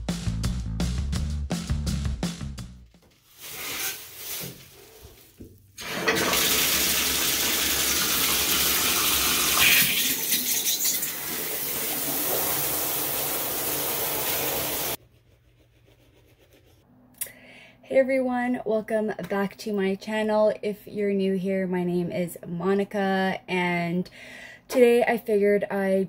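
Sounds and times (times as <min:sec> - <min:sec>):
water running from bathtub tap: 0:05.8 - 0:15.0.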